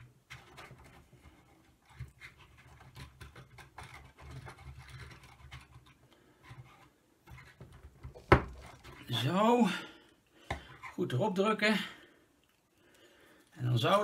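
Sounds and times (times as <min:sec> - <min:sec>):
plastic parts clicking and scraping: 0:00.0 - 0:09.1.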